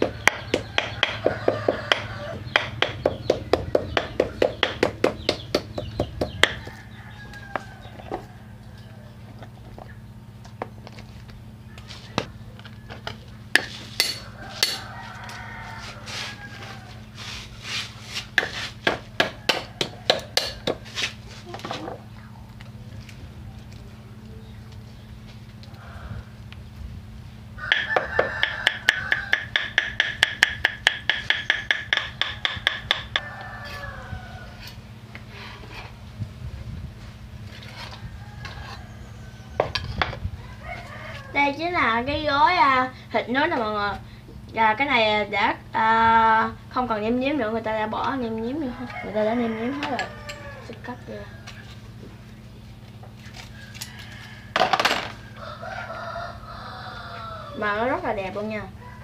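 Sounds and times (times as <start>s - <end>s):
rooster crowing: 0.4s - 2.7s, 6.5s - 9.2s, 11.6s - 13.4s, 14.2s - 17.3s, 19.1s - 20.8s, 25.6s - 26.5s, 27.6s - 29.9s, 32.2s - 35.0s, 37.8s - 41.5s, 48.5s - 52.0s, 53.2s - 58.0s, 58.6s - 59.0s
knife chopping on wooden board: 18.4s - 20.9s.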